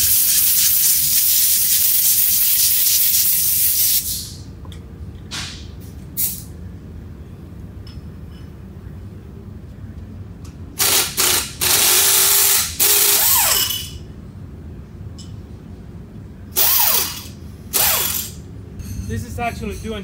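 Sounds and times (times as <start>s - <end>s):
air tool hissing and whining: 16.6s - 18.4s.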